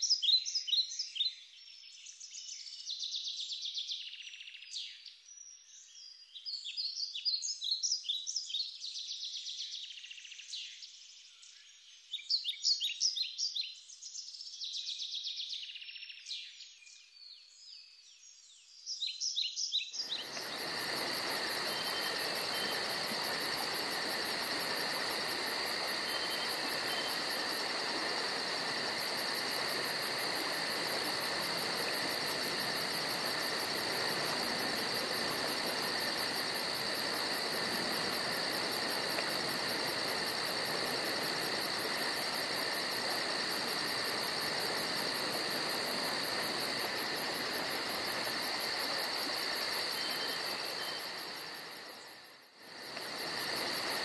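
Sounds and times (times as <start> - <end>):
insect chorus trilling: 20.0 - 54.0.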